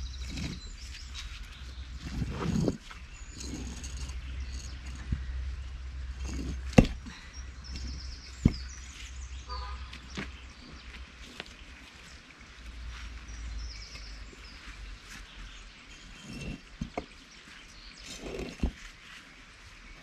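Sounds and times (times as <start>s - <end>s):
scraping shuffle: 0.0s - 5.3s, 10.6s - 20.0s
birds chirping: 0.0s - 20.0s
stones knocking: 0.1s - 1.1s, 1.9s - 5.4s, 6.1s - 8.9s, 18.1s - 18.8s.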